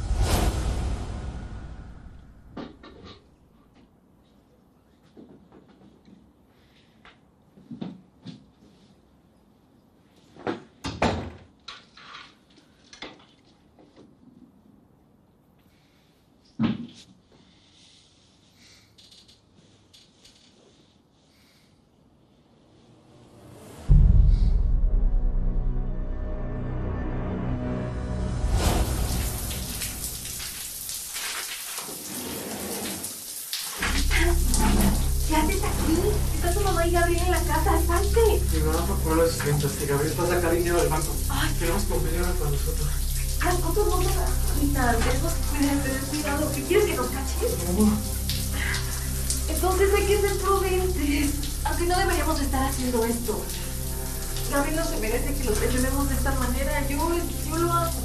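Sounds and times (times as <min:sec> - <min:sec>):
low steady music: 0:23.3 - 0:30.7, 0:33.8 - 0:58.0
shower spray splashing: 0:28.4 - 0:58.0.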